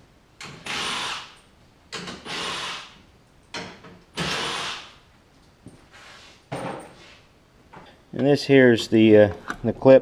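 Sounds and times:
cordless drill running: 0:02.2 - 0:03.0, 0:04.2 - 0:04.9.

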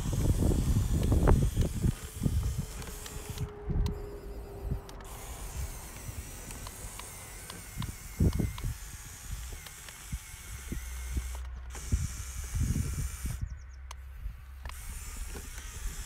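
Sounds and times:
motor and gearbox whine: 0:00.0 - 0:16.0.

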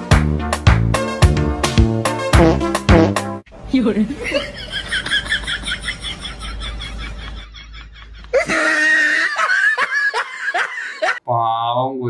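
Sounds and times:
young women laughing: 0:04.1 - 0:11.2
shriek of laughter: 0:04.2 - 0:11.2.

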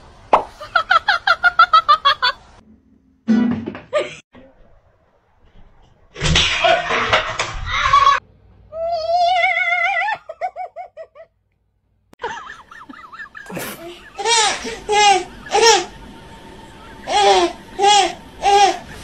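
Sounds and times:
clattering noise: 0:03.2 - 0:08.2
baby laughing: 0:12.4 - 0:16.0, 0:17.0 - 0:19.0.

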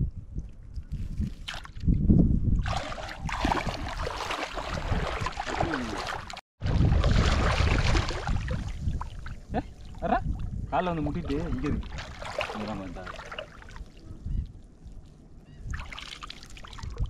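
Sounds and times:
feet wading through splashing water: 0:02.6 - 0:09.4, 0:11.3 - 0:14.0, 0:15.7 - 0:17.0.

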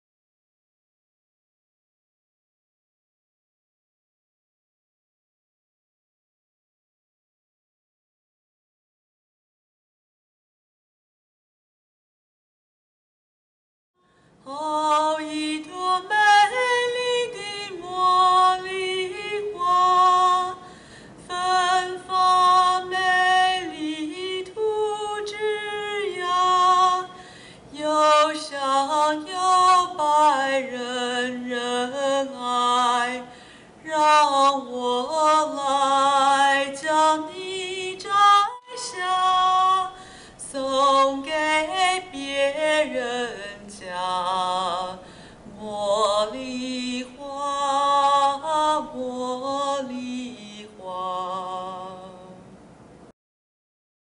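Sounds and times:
woman singing with vibrato: 0:14.4 - 0:52.5.

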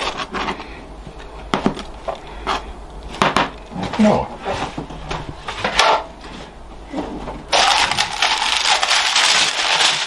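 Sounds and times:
baking parchment crinkling: 0:07.5 - 0:10.0.

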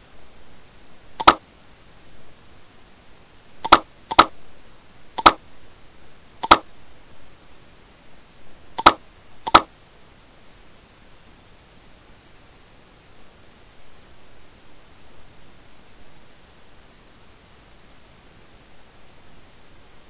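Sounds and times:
faint steady hiss: 0:00.0 - 0:20.0
mouse button clicking: 0:01.2 - 0:01.4, 0:03.6 - 0:04.3, 0:05.2 - 0:05.4, 0:06.4 - 0:06.6, 0:08.8 - 0:09.7.

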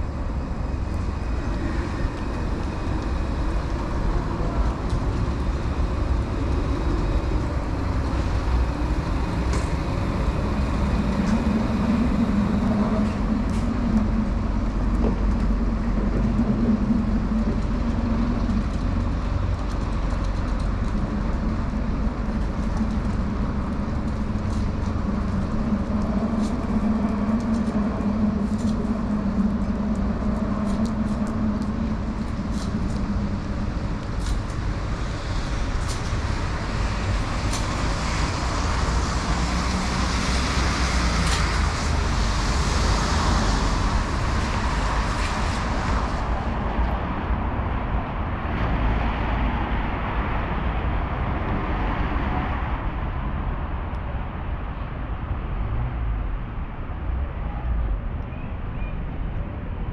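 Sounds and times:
low traffic rumble: 0:00.0 - 0:59.9
tyres hissing on wet road: 0:30.0 - 0:47.2.

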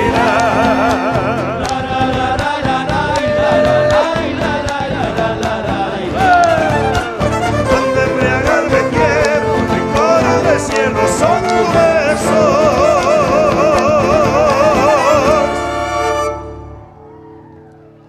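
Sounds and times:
folk band playing: 0:00.0 - 0:17.0
violins with vibrato: 0:06.3 - 0:16.9.

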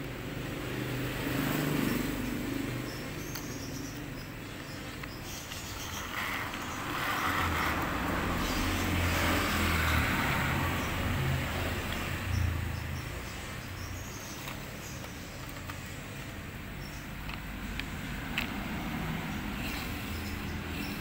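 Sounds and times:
toy car rolling on tile floor: 0:02.9 - 0:11.1, 0:14.0 - 0:16.0, 0:16.9 - 0:21.0.

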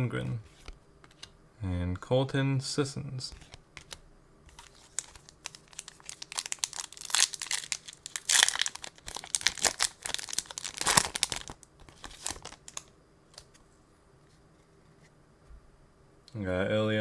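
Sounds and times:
foil wrapper crinkling and tearing: 0:04.5 - 0:12.9.

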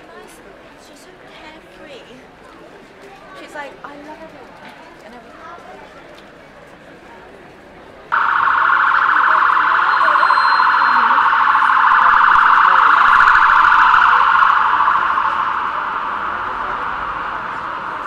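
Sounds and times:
police siren warbling: 0:08.1 - 0:18.0.

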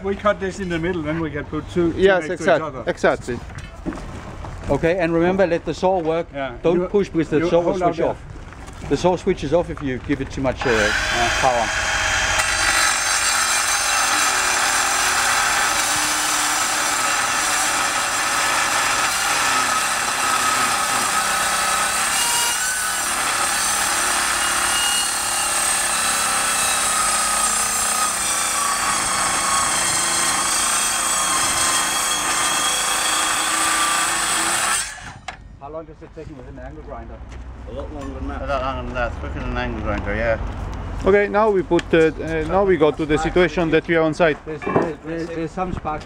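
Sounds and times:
circular saw cutting steel: 0:10.6 - 0:35.3.

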